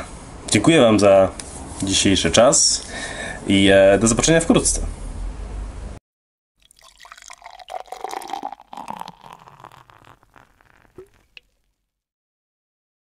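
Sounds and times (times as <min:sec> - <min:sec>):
water drips: 0:06.6 - 0:11.8
liquid pouring and gurgling: 0:06.6 - 0:12.0.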